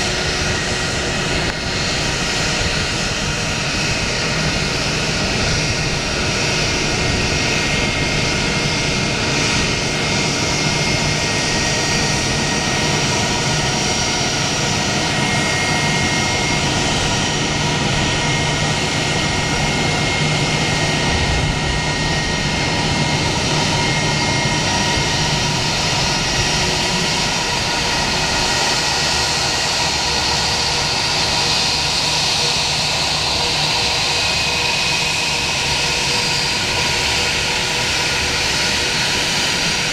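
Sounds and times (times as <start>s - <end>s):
jet engines whining: 0.0s - 39.9s.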